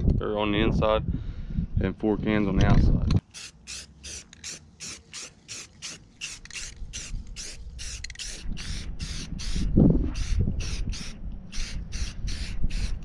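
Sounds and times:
wind rumbling on microphone: 0.0 - 3.2, 6.2 - 13.0
spray paint can hissing: 3.2 - 13.0.

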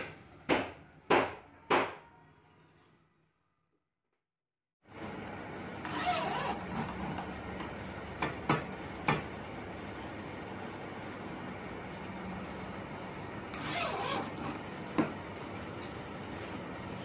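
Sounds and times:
electric drill whirring: 5.8 - 7.0, 13.5 - 14.6.

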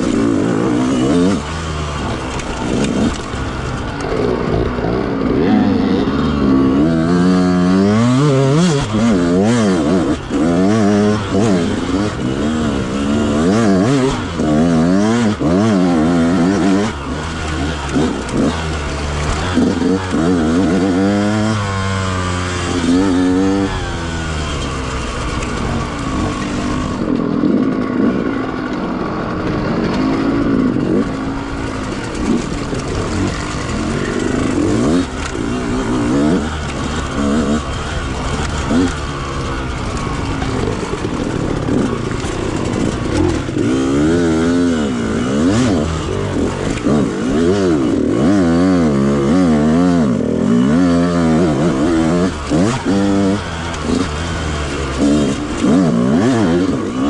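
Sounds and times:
two-stroke engine revving: 0.0 - 57.0.

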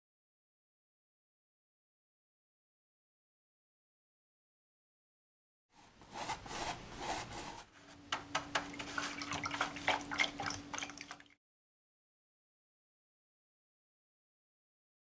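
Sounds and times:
low steady hum: 5.8 - 11.4
brush knocking against cup: 8.0 - 10.5
drips: 8.4 - 11.4
water swishing: 8.6 - 11.4.

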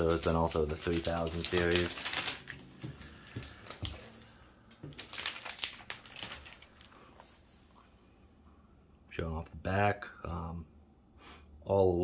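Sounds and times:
plastic sleeve crinkling: 0.0 - 7.6.

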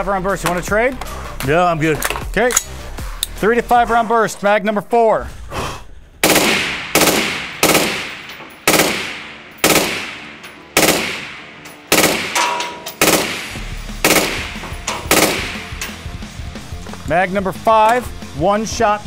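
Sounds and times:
suppressed rifle shots: 6.2 - 15.9.

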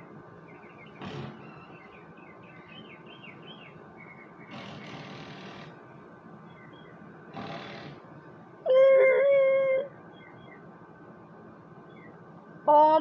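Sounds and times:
small birds chirping: 0.0 - 5.2, 5.8 - 7.9, 10.0 - 10.7, 11.8 - 12.3.

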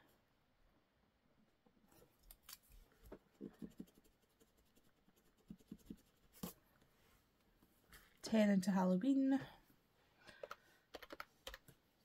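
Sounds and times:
pen scratching on paper: 3.4 - 6.6.

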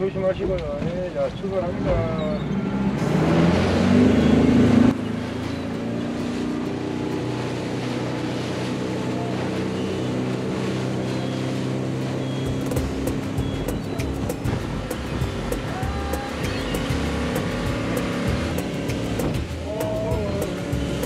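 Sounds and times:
outboard motor revving: 0.0 - 21.0
water and wind hiss: 0.0 - 21.0.

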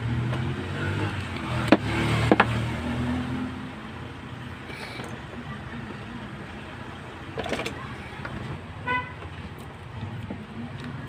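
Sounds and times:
vehicle horn toot: 8.8 - 9.2.

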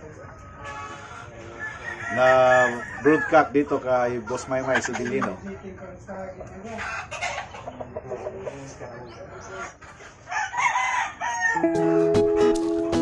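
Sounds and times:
rooster crowing: 1.5 - 3.6, 10.3 - 11.9
background music with held notes: 11.6 - 13.0.

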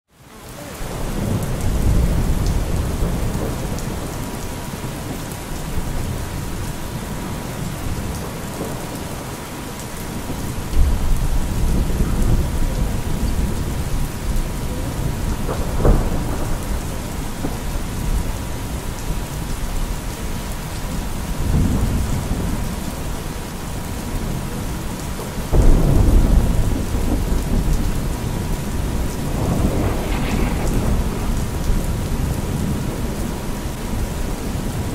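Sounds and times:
steady rain: 0.1 - 34.9
thunder rolling: 10.2 - 18.5, 25.5 - 34.9.

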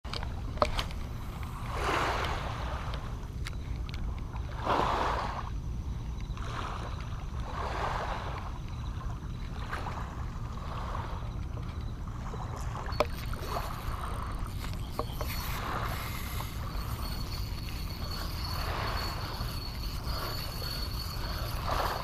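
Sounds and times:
wind rumbling on microphone: 0.0 - 22.0
small waves lapping on sand: 1.6 - 3.2, 4.4 - 5.5, 6.3 - 11.4.

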